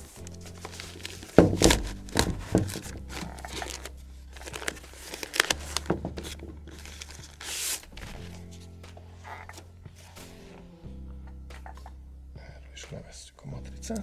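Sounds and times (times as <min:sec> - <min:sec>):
packaging sleeve crinkling: 0:00.0 - 0:08.6.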